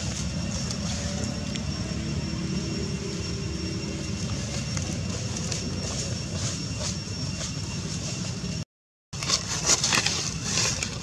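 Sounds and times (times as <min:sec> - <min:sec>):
dry leaves crackling and rustling: 0:00.0 - 0:08.5, 0:09.2 - 0:11.0
faint high whine: 0:00.0 - 0:08.6.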